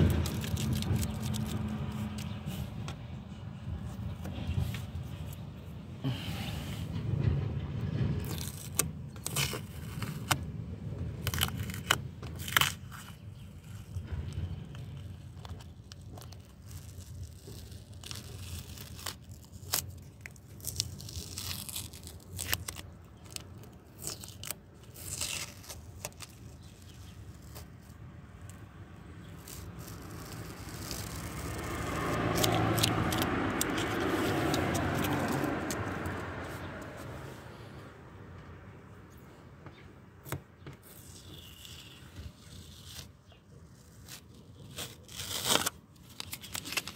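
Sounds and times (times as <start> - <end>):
masking tape peeling off: 0.0 - 3.2, 8.2 - 37.1, 40.2 - 46.9
broad rushing noise: 29.4 - 39.0.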